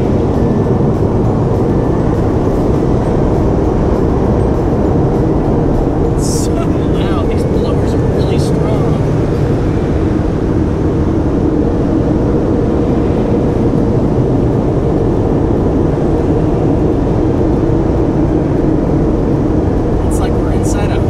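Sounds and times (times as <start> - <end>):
car wash dryer blowers: 0.0 - 21.0.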